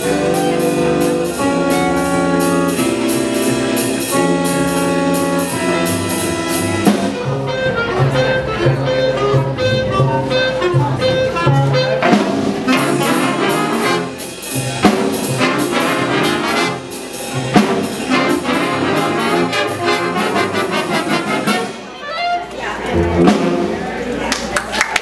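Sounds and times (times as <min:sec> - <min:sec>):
low repeated bass notes: 0:00.0 - 0:21.7
saxophones: 0:00.0 - 0:23.4
trumpets and trombones: 0:00.0 - 0:23.9
jazz big band playing: 0:00.0 - 0:24.6.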